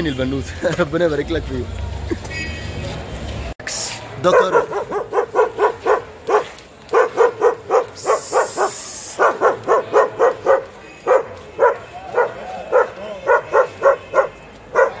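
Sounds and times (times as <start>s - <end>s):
dog barking rapidly: 4.2s - 15.0s.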